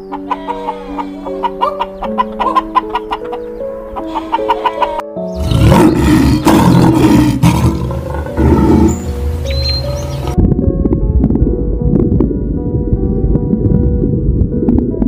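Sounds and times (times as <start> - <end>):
light background music: 0.0 - 15.0
lion roaring: 5.4 - 9.0.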